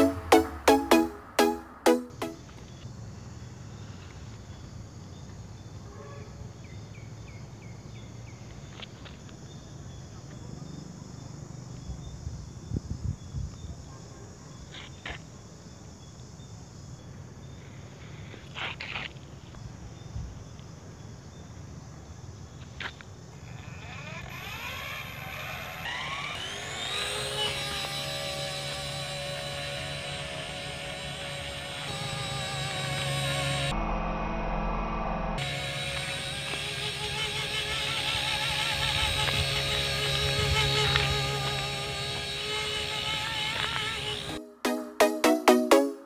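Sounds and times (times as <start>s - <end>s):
electric motor whine: 23.5s - 44.4s.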